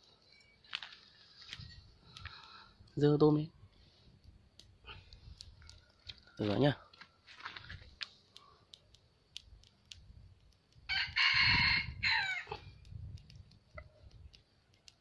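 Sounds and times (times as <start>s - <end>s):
rooster crowing: 10.9s - 12.6s.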